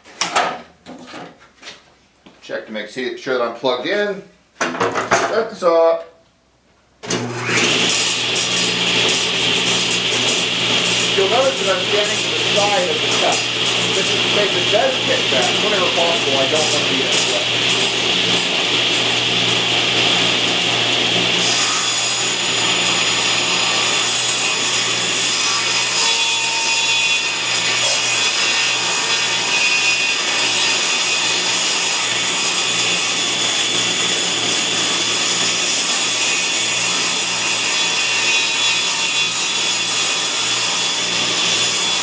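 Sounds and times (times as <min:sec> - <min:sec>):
table saw cutting wood: 0:07.0 - 0:42.0
saw motor humming: 0:07.1 - 0:26.0.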